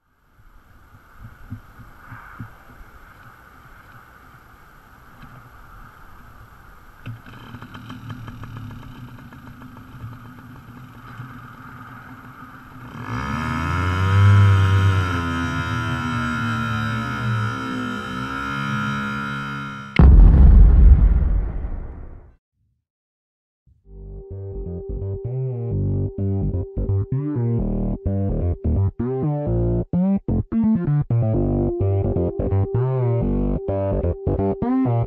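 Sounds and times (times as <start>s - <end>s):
two-stroke engine revving: 7.2s - 20.0s.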